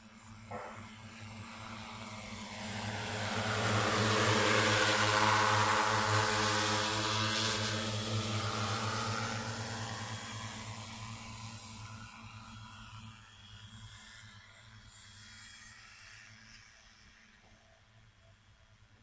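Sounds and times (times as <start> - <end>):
drone propellers buzzing: 0.2 - 13.1.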